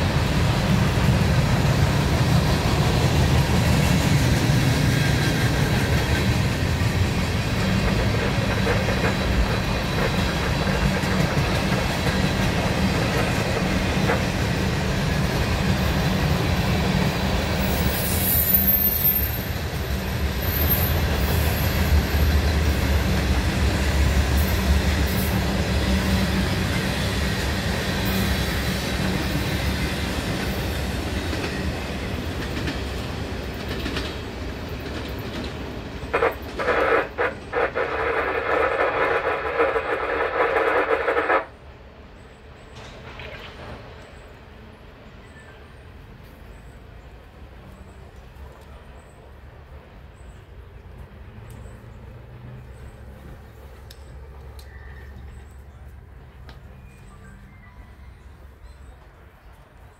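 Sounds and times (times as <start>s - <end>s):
freight train wheels rumbling: 0.0s - 59.9s
train wheel squeal: 2.5s - 33.0s, 54.1s - 55.8s, 56.7s - 59.0s.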